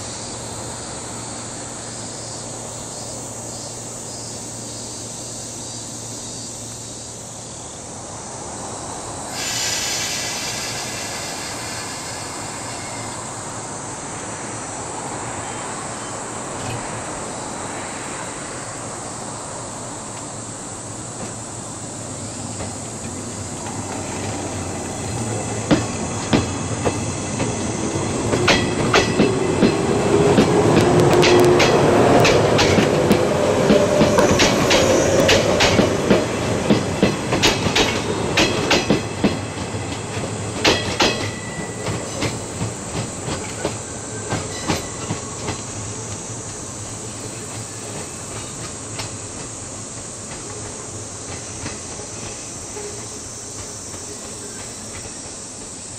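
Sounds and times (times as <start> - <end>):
train tone: 9.3 - 18.6, 21.2 - 49.2, 50.3 - 55.8
train wheels clacking over rail joints: 22.5 - 55.9.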